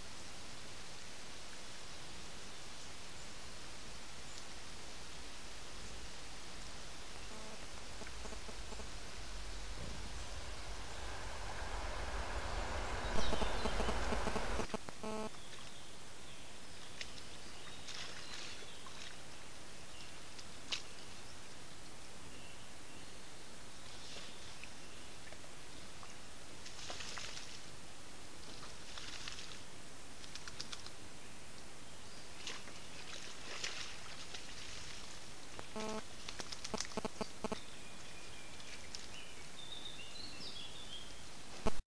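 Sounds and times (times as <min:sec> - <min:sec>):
steady hiss: 0:00.0 - 0:15.3
low rumble: 0:05.8 - 0:15.2
faint high whistling calls: 0:07.0 - 0:15.8
short pitched tone: 0:07.2 - 0:15.3, 0:35.7 - 0:36.0
clicks and snaps in mud: 0:30.2 - 0:31.0, 0:36.2 - 0:37.0.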